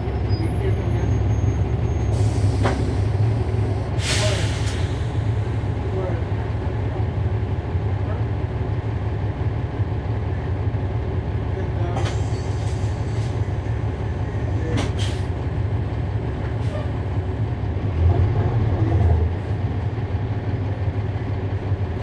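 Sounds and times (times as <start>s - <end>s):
bus diesel engine rumbling: 0.0s - 22.0s
brief air hisses: 4.0s - 5.0s.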